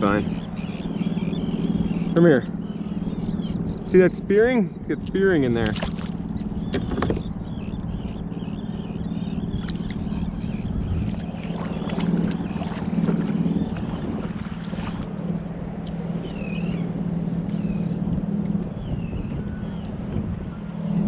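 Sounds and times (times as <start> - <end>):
seabirds calling: 0.0 - 15.1, 15.9 - 21.0
boat motor droning: 0.0 - 21.0.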